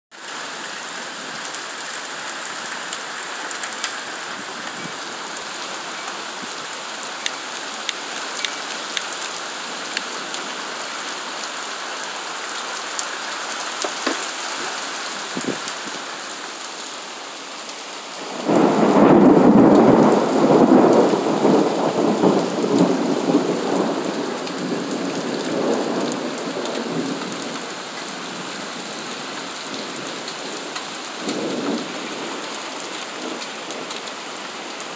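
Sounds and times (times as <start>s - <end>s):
steady rain falling: 0.1s - 34.9s
rolling thunder: 18.2s - 27.4s.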